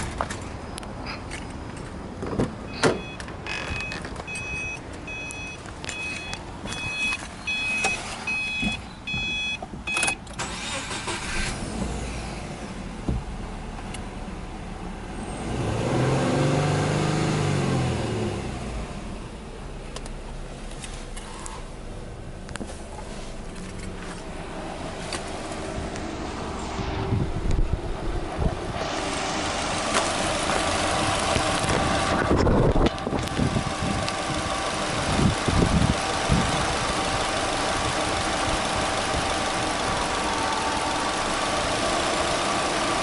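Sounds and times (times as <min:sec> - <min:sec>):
car door clunking: 0:01.4 - 0:05.1
dashboard warning chime beeping: 0:02.7 - 0:10.2
car engine starting and revving: 0:10.3 - 0:43.0.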